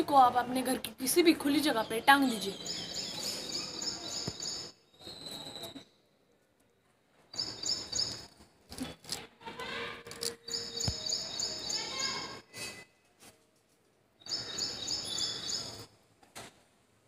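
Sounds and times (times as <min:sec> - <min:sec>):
bird chirping: 0:01.6 - 0:06.2, 0:07.3 - 0:09.0, 0:10.1 - 0:12.8, 0:14.2 - 0:15.9
faint clicks and rustles: 0:12.6 - 0:14.1.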